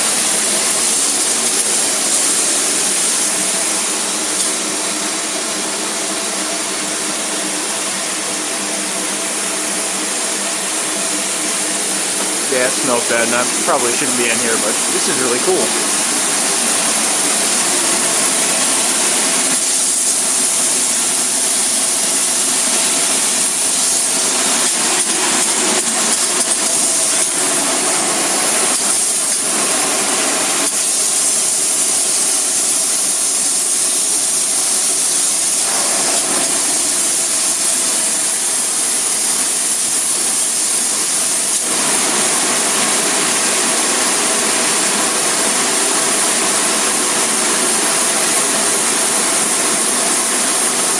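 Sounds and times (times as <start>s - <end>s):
spray-foam rig hissing: 0.0s - 6.0s, 10.3s - 50.9s
machine hum: 8.3s - 39.8s.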